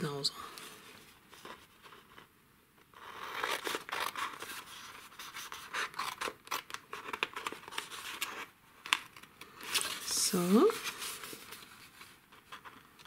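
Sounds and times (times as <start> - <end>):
paper rustling: 3.0 - 13.0.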